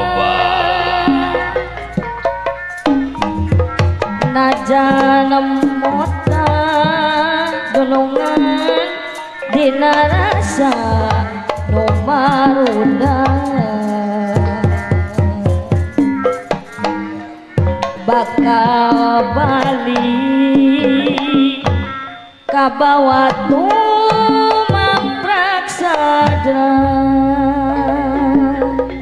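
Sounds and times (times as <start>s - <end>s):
gamelan ensemble: 0.0s - 22.7s, 27.0s - 29.0s
hand drums playing fast: 0.0s - 29.0s.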